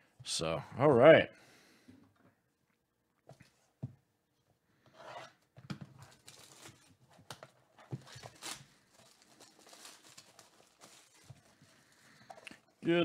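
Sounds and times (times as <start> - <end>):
plastic wrap crinkling and tearing: 6.0 - 12.7.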